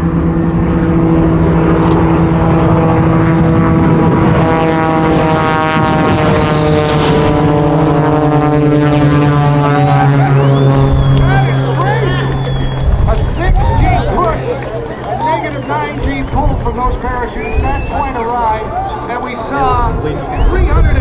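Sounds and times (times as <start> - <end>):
jet engine rush: 0.0 - 21.0
propeller planes droning: 0.0 - 21.0.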